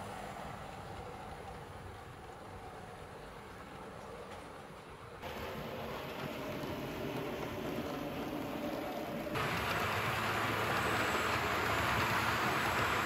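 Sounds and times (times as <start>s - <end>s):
model train motors whirring: 5.3s - 13.0s.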